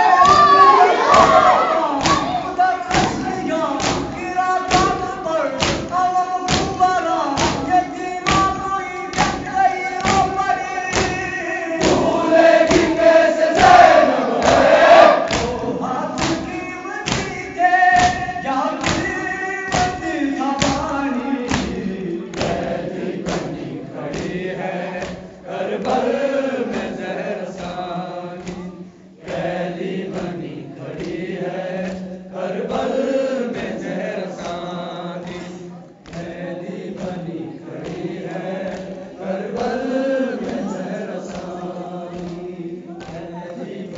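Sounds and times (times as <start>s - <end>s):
group chanting: 0.0s - 43.9s
rhythmic chest-beating: 0.0s - 43.9s.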